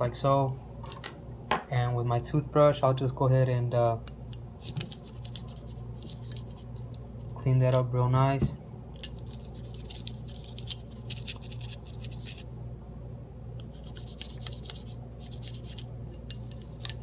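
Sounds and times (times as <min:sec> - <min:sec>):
toothbrush scrubbing metal: 0:04.6 - 0:07.0, 0:09.0 - 0:12.5, 0:13.6 - 0:17.0.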